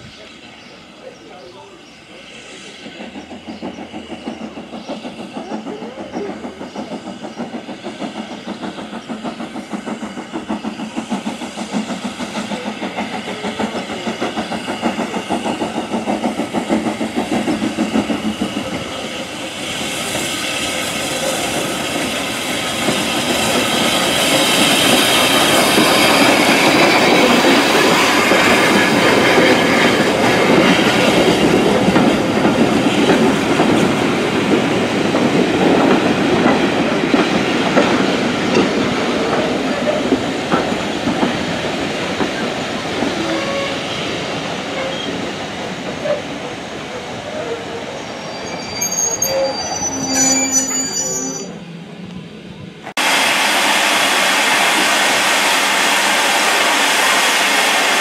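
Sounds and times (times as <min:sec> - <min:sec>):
hiss of steam: 0:00.0 - 0:44.5, 0:53.0 - 0:58.0
steam locomotive exhaust beats: 0:01.9 - 0:47.4.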